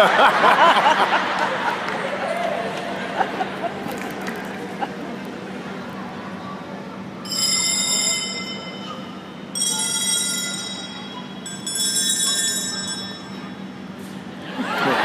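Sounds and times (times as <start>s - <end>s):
high metallic bell ringing: 7.3s - 13.7s.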